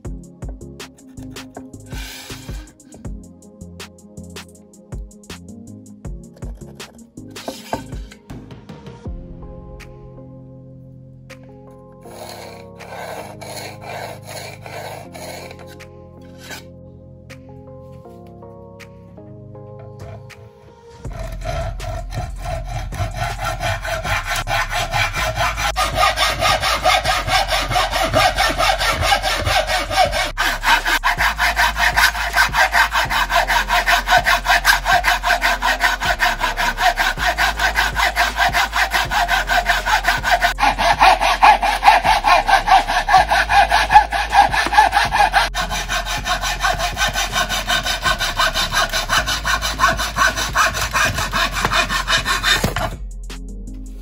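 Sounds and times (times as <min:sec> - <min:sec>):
hand saws cutting wood: 0:01.1 - 0:03.0, 0:06.6 - 0:08.2, 0:12.1 - 0:16.6, 0:21.1 - 0:53.0.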